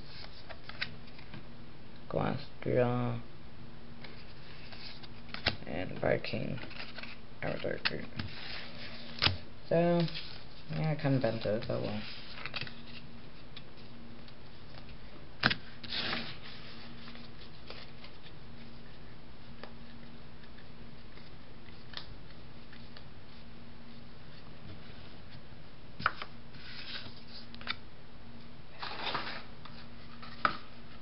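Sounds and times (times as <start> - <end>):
faint steady hum: 0.0 - 31.0
cards rustling: 6.4 - 13.9, 14.6 - 23.4, 26.0 - 27.8.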